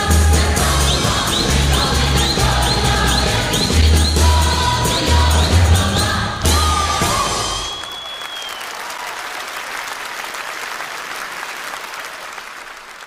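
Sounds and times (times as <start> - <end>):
choir song: 0.0 - 7.8
audience applauding: 0.0 - 13.0.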